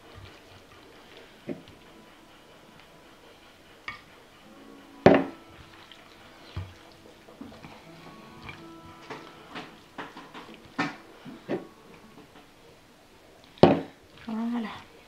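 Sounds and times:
dishes clanking: 0:03.8 - 0:12.8.

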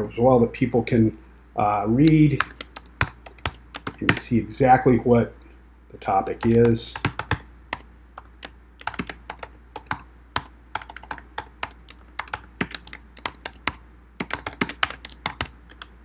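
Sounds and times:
computer keyboard typing: 0:02.0 - 0:04.3, 0:06.4 - 0:16.0.

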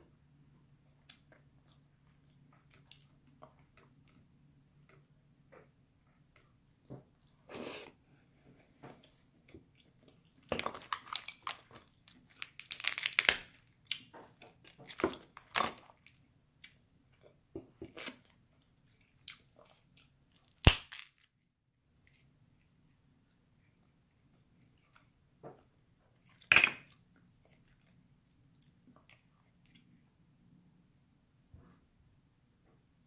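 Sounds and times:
crab shells cracking and snapping: 0:10.6 - 0:14.1, 0:20.4 - 0:21.2.

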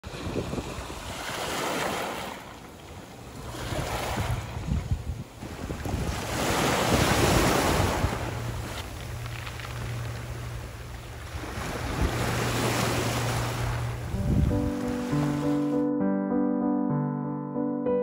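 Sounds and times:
waves washing over pebbles: 0:00.1 - 0:02.6, 0:05.4 - 0:14.0.

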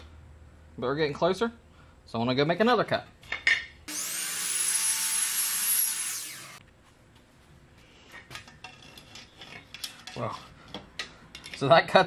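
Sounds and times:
miter saw cutting trim: 0:03.9 - 0:06.6.

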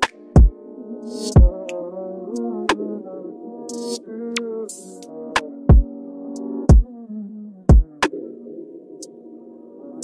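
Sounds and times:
electronic beat: 0:00.0 - 0:00.5, 0:01.1 - 0:01.6.

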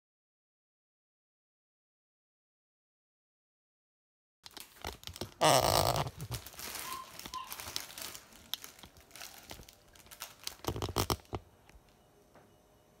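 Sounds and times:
plastic bag crinkling: 0:04.5 - 0:11.6.

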